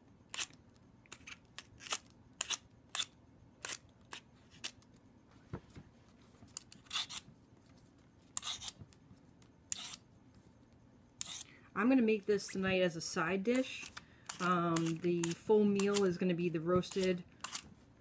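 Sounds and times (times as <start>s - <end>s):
vegetable peeler scraping squash: 6.7s - 7.3s, 8.3s - 8.8s, 9.7s - 10.1s, 11.2s - 11.5s, 13.5s - 17.7s.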